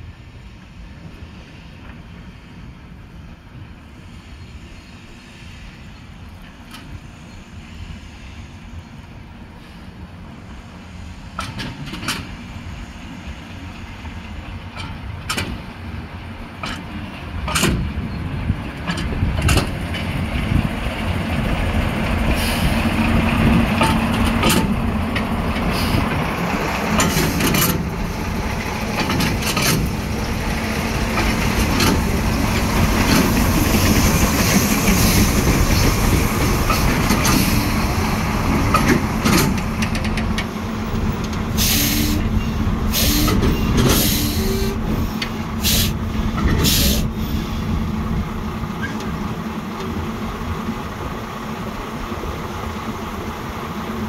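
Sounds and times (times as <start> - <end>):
diesel locomotive engine running: 0.0 - 54.0
air brake hisses: 9.6 - 10.0, 22.4 - 22.8, 25.7 - 26.1, 41.5 - 47.8.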